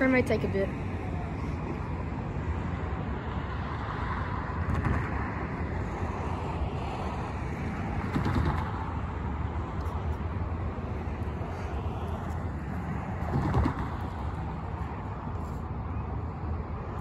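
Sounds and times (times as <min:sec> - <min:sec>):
cars driving past: 0:00.0 - 0:17.0
steady traffic rumble: 0:00.0 - 0:17.0.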